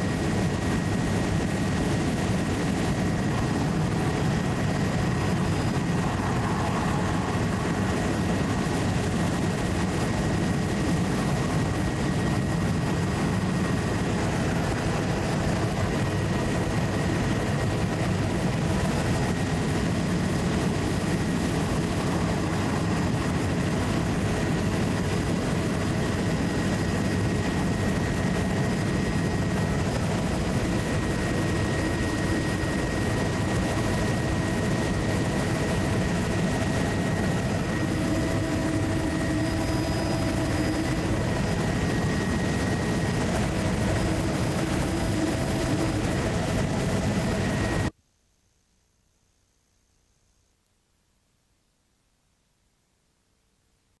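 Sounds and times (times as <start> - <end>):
aircraft engine drone: 0.0 - 47.9
faint high whine: 0.0 - 54.0.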